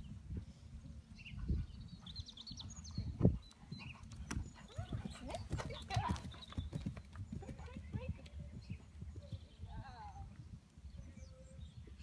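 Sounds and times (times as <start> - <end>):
horse hoofbeats on sand: 1.6 - 10.2.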